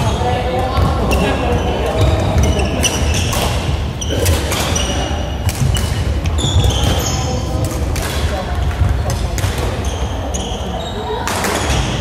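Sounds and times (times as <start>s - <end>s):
shoes squeaking on court: 0.8s - 7.6s, 9.5s - 12.0s
rackets striking shuttlecock: 0.8s - 9.9s.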